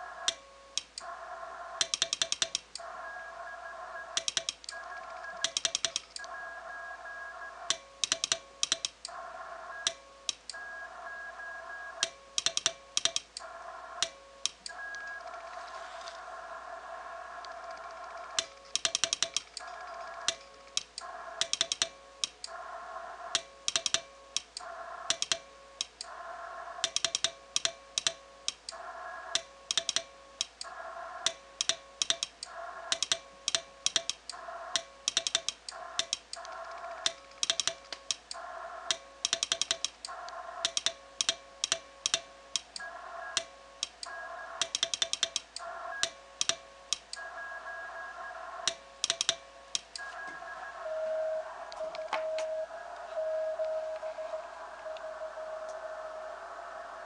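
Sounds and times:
morse sidetone beeping: 47.2s - 56.4s.

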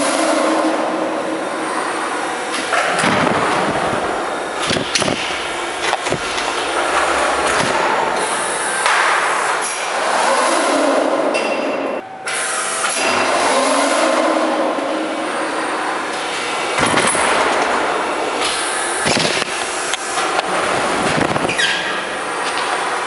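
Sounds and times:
steady mechanical running noise: 0.0s - 23.0s.

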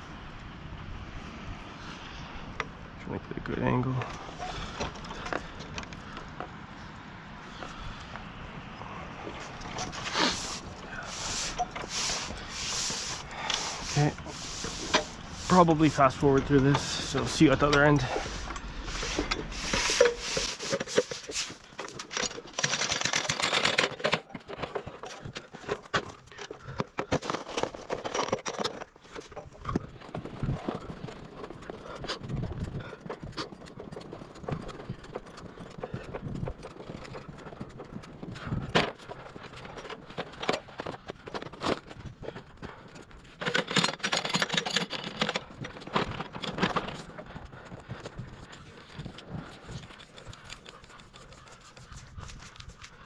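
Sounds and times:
footsteps in packed snow: 9.2s - 21.8s
rustling and crunching: 9.2s - 53.0s
boots clanking on ladder rungs: 9.3s - 51.7s.

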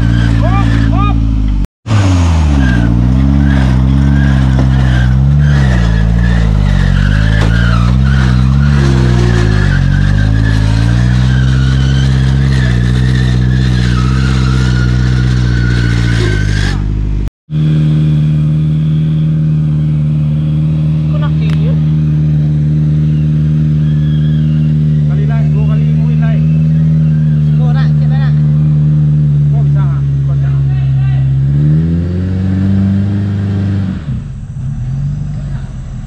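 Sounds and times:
buggy engine revving: 0.0s - 36.0s
engine running steadily: 15.7s - 31.5s.

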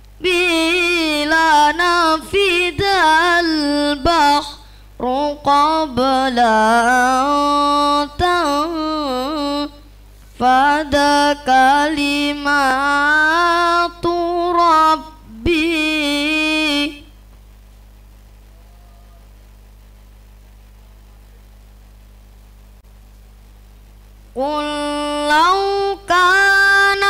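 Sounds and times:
faint steady hum: 0.0s - 27.0s
boy reciting melodically: 0.2s - 17.2s, 24.3s - 27.0s.

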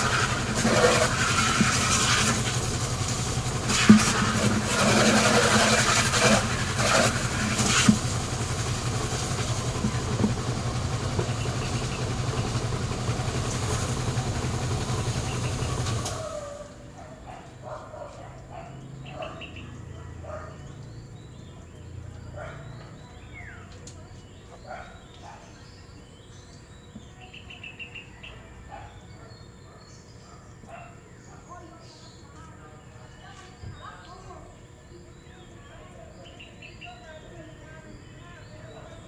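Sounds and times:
hose water jet spattering: 0.0s - 16.7s
engine running: 0.0s - 17.8s.

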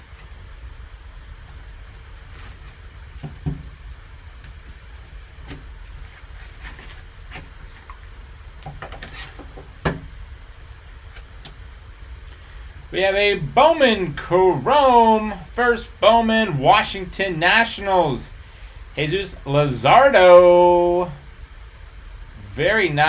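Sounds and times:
low hum: 0.0s - 23.0s
foam and cardboard scraping: 1.4s - 3.3s, 4.6s - 8.0s.

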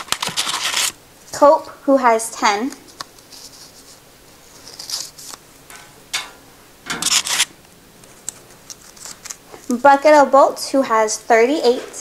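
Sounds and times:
paper rustling: 0.0s - 1.0s, 2.8s - 5.4s, 6.9s - 9.8s.

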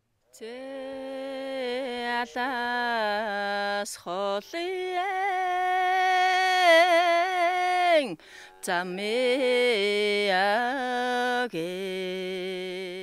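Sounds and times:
person singing unaccompanied: 0.3s - 13.0s
singer breathing: 8.2s - 8.6s.

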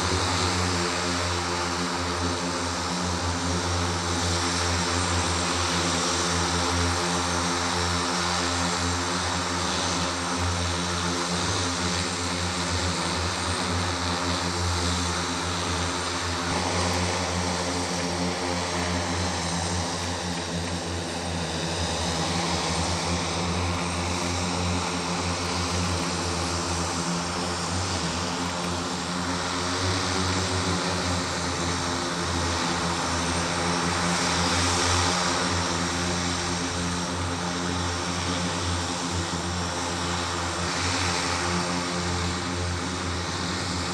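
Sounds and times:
propeller whir: 0.0s - 43.9s.

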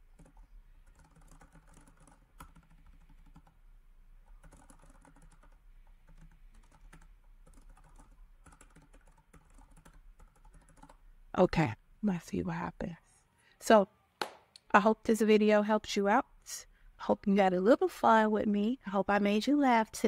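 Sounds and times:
typing on a keyboard: 0.1s - 3.6s, 4.2s - 11.0s.

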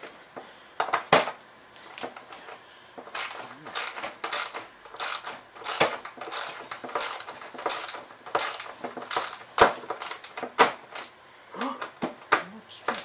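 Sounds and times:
hand ratchet clicking: 3.0s - 11.2s.

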